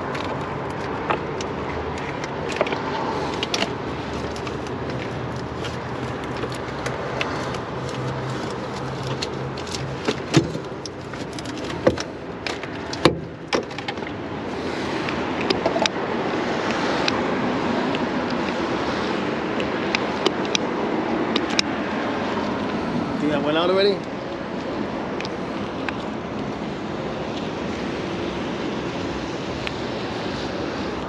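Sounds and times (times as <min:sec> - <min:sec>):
hand tools clicking and knocking: 0:00.0 - 0:14.2.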